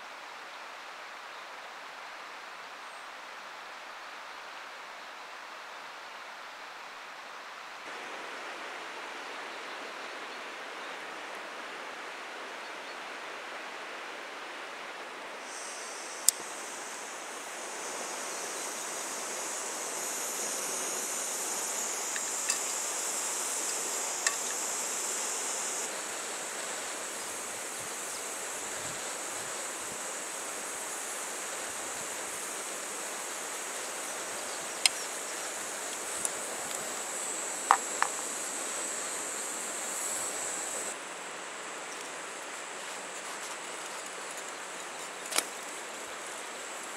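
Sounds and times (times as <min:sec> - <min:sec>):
rushing water: 0:05.4 - 0:46.9
high insect drone: 0:15.3 - 0:46.9.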